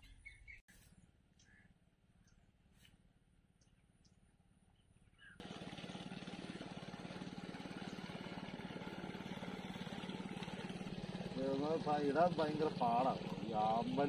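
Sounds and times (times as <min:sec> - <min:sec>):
faint bird chirps: 0:00.0 - 0:02.9, 0:03.6 - 0:05.4
small engine running: 0:05.4 - 0:14.0.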